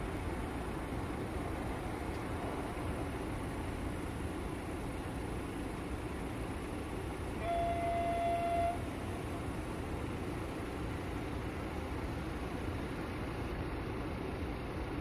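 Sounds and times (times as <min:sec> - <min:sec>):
train horn: 0:07.4 - 0:08.9.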